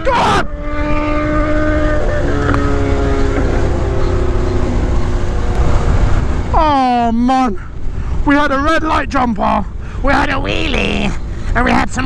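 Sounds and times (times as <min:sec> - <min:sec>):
motorcycle engine cruising: 0:00.0 - 0:08.2
wind noise on microphone: 0:00.7 - 0:06.6.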